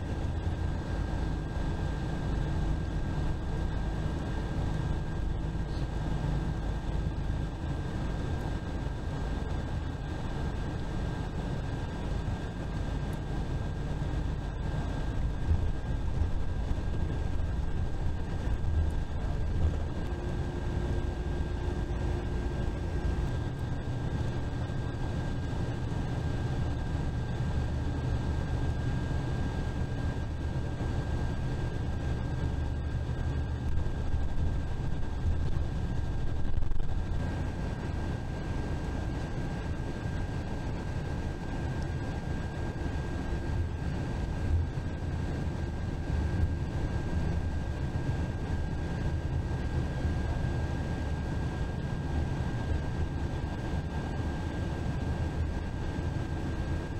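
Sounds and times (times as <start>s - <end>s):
bus engine and road rumble: 0.0s - 56.9s
thin constant whine: 0.0s - 56.9s.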